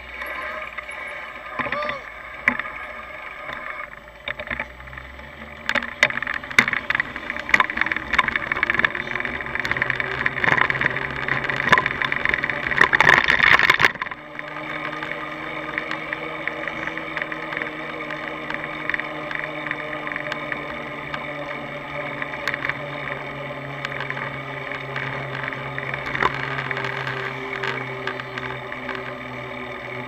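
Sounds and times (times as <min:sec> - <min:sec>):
bicycle rattling and clicking: 0:00.0 - 0:30.0
steady hum: 0:00.0 - 0:30.0.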